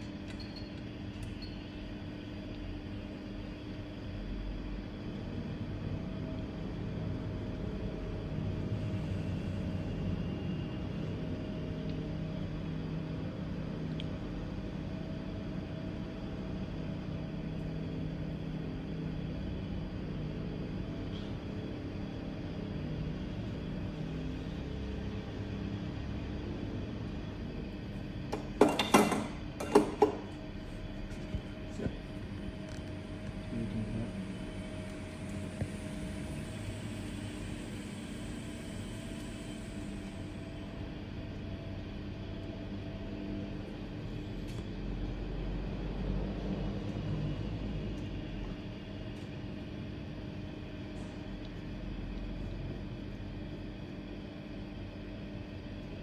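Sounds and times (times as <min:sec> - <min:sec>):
small motor humming: 0:33.3 - 0:40.9.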